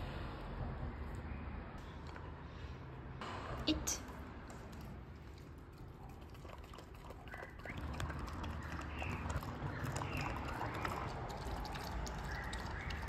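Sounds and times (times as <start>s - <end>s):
dog lapping milk: 4.6s - 13.0s.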